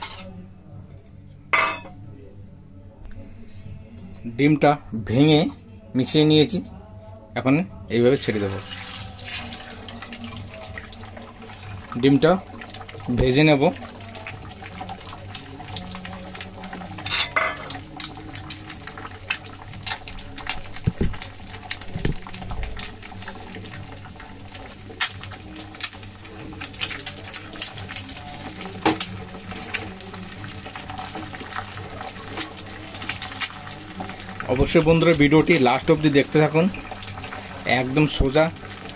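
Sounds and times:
oil sizzling and crackling: 8.2 - 38.9.

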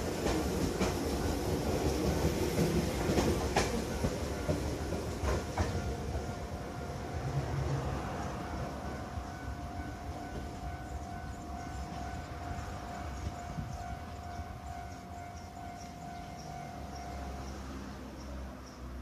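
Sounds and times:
level-crossing alarm ringing: 8.6 - 17.8.

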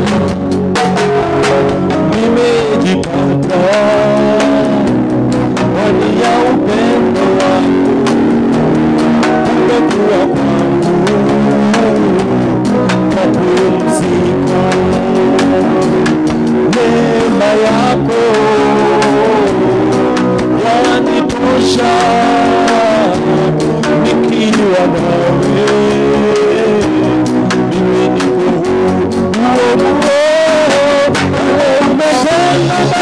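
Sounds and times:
instrumental worship music: 0.0 - 33.0.

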